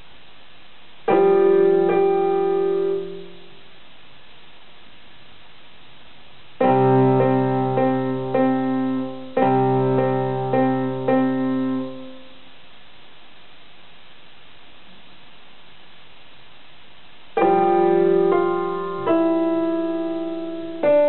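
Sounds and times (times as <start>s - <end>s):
electronic keyboard piano notes: 1.1s - 3.5s, 6.6s - 12.3s, 17.4s - 21.0s.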